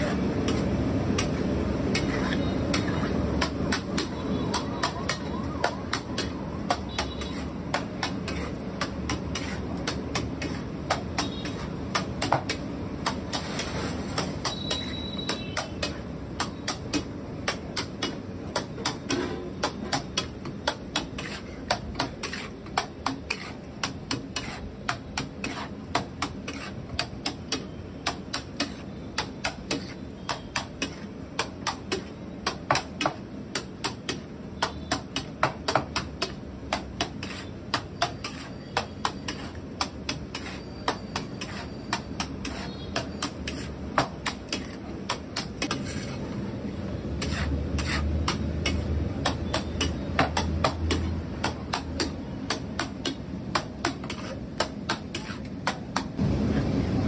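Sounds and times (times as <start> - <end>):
metal spatula scraping iron griddle: 0.0 - 3.4, 6.9 - 11.8, 18.9 - 32.2, 37.0 - 46.4, 47.1 - 50.0, 53.8 - 55.6
steady kitchen noise: 0.0 - 57.0.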